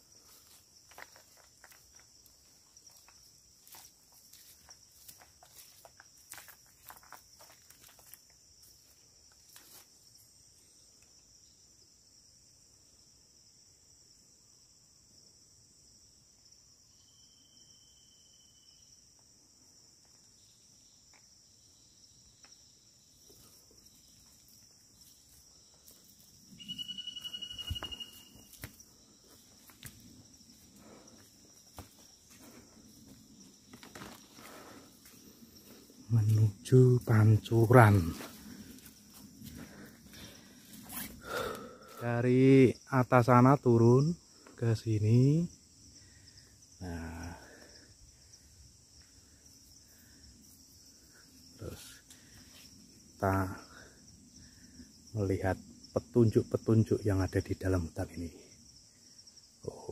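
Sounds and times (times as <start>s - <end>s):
footsteps on forest floor: 0.0s - 10.0s, 23.3s - 42.0s
high insect drone: 0.0s - 59.9s
high whistling call: 26.6s - 28.5s.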